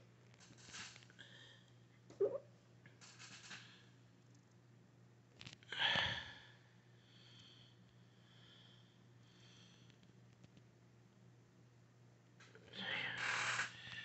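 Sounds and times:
steady low hum: 0.0s - 14.0s
person breathing: 1.2s - 1.8s, 5.7s - 10.0s.

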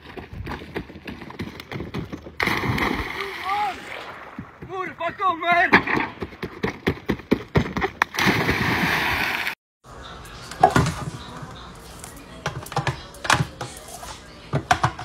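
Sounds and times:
splash of person jumping in water: 2.4s - 4.2s, 8.1s - 9.6s
footsteps pounding on dock: 4.4s - 8.0s.

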